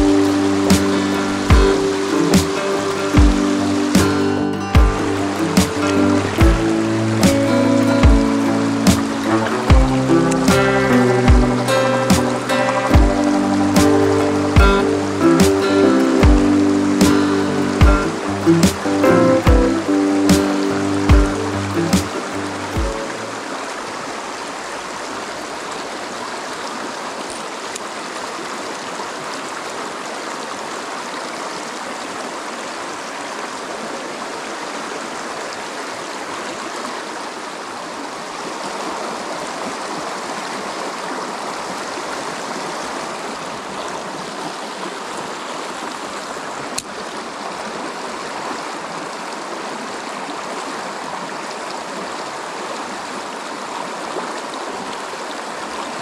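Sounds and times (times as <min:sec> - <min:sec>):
creek rushing over rocks: 0:00.0 - 0:56.0
sharp click: 0:08.9 - 0:09.3, 0:18.6 - 0:18.9, 0:21.9 - 0:22.3.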